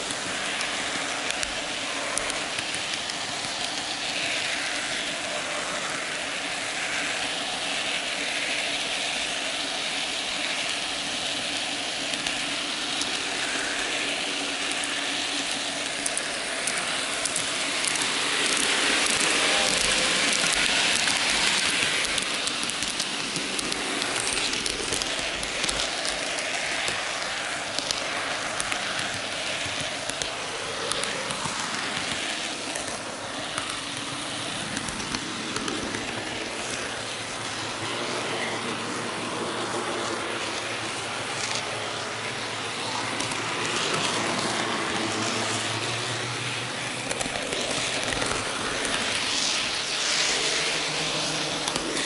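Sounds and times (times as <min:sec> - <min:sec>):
model train wheels rattling on rails: 0:00.0 - 0:52.0.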